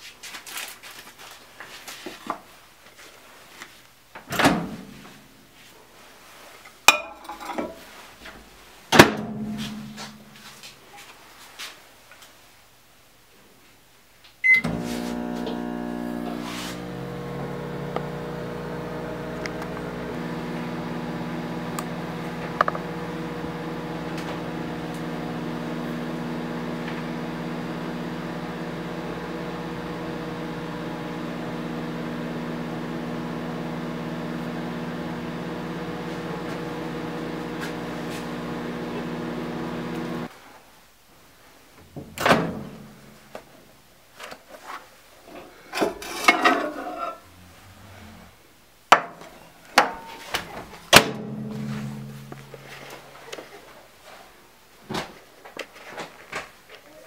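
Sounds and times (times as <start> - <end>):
microwave oven humming: 14.4 - 40.3.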